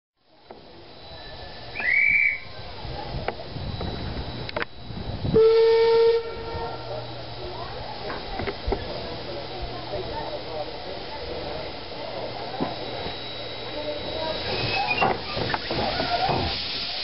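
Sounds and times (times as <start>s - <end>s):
short high whistle: 1.2s - 2.6s, 14.5s - 15.2s
steam locomotive whistle: 1.7s - 2.5s, 5.3s - 6.8s
steam hissing: 8.1s - 17.0s.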